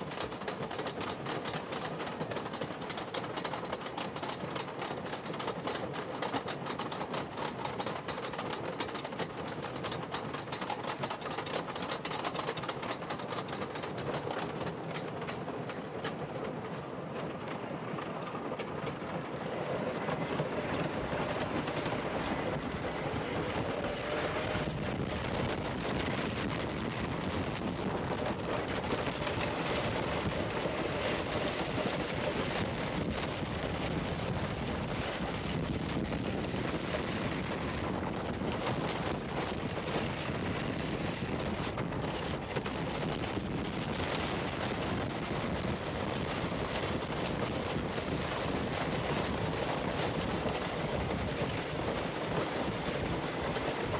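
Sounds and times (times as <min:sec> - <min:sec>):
roller coaster wheels clattering: 0:00.0 - 0:53.9
wind buffeting microphone: 0:19.0 - 0:53.9.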